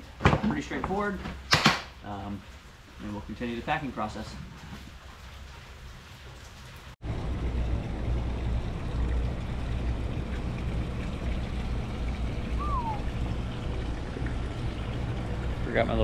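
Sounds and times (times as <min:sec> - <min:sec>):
low rumble with hiss: 0:07.0 - 0:16.0
short falling chirp: 0:12.6 - 0:13.1.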